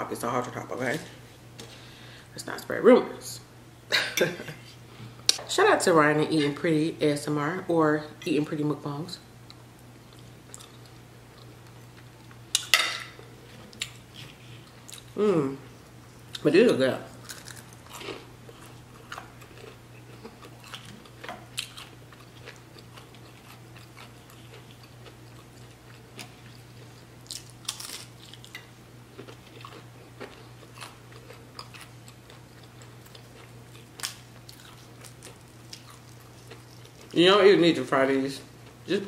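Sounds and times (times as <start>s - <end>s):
steady low hum: 0.0s - 39.0s
crunchy pastry chewing: 17.1s - 37.2s.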